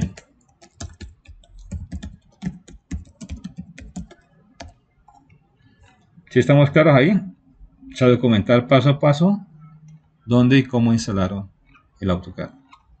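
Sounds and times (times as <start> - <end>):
typing on computer keyboard: 0.0 - 5.3.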